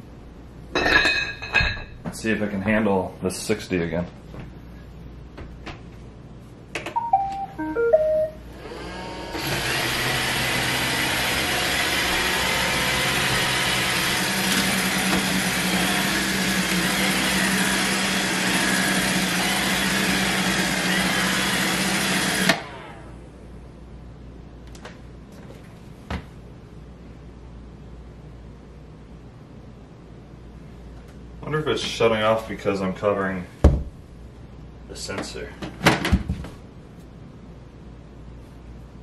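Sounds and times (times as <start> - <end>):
robot vacuum beeping tune: 7.0 - 8.5.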